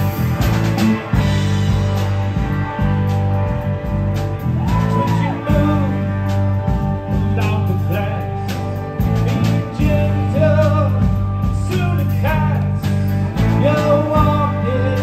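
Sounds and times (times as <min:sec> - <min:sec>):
bending guitar lead notes: 0:00.0 - 0:15.0
repeating bass line: 0:00.0 - 0:15.0
rock band playing: 0:00.0 - 0:15.0.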